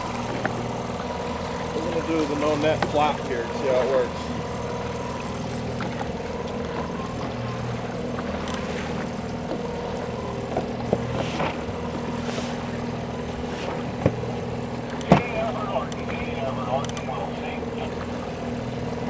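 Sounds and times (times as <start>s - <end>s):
outboard motor running: 0.0s - 19.0s.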